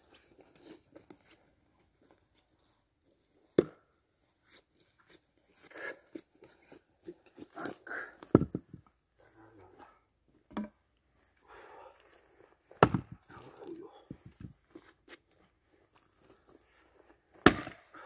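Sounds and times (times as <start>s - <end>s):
heavy wooden thud: 8.4s - 8.7s.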